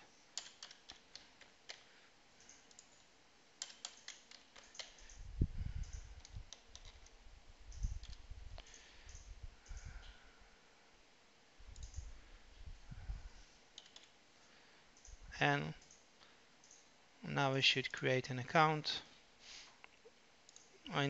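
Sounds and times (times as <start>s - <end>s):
keyboard key clicks: 0.4s - 1.9s, 3.6s - 5.2s, 5.8s - 7.1s, 13.8s - 14.1s.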